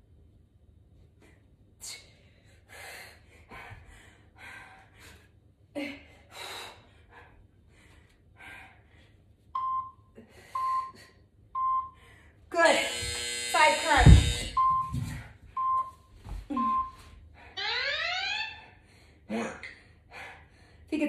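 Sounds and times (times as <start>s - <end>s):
interval timer beeps: 9.6s - 10.0s, 10.6s - 11.0s, 11.6s - 12.0s, 12.9s - 15.0s, 15.6s - 17.0s.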